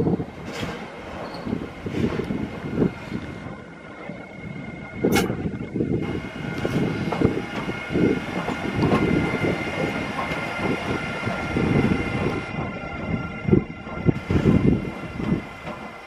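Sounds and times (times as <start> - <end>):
locomotive high whine: 0.1 - 16.0
sharp click: 5.1 - 5.4
wheels knocking on rails: 6.6 - 16.0.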